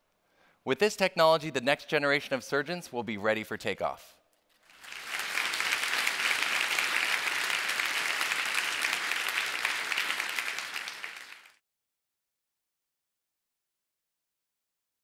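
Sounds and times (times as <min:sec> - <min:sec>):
audience applauding: 0:04.6 - 0:11.6.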